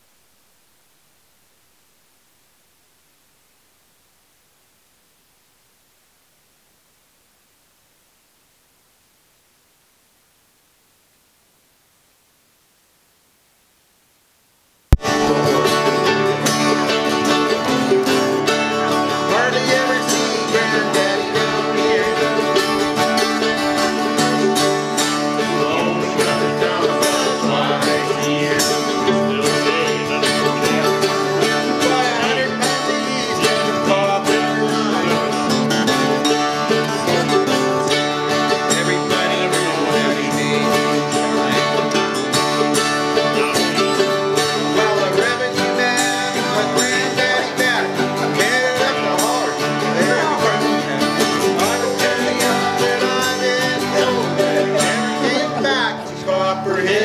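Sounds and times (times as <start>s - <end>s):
acoustic guitar strummed: 14.9s - 57.0s
mandolin picked: 14.9s - 57.0s.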